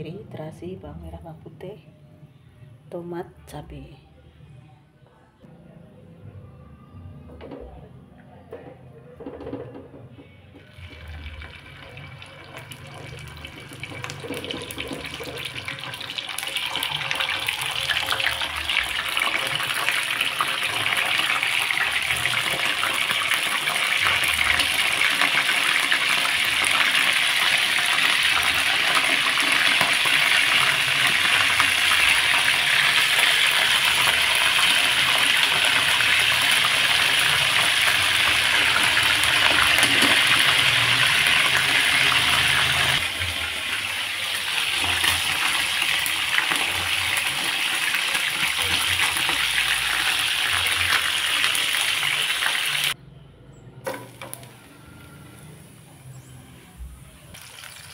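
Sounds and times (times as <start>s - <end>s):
chicken sizzling in hot oil: 10.7s - 53.0s, 57.3s - 57.9s.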